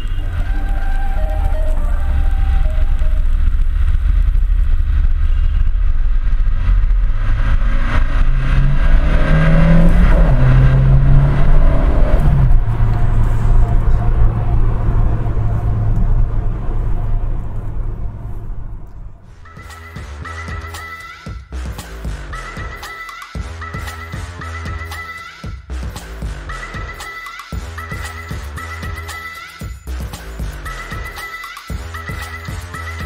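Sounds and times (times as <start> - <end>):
car engine driving: 0.0 - 20.8
road noise: 0.0 - 21.0.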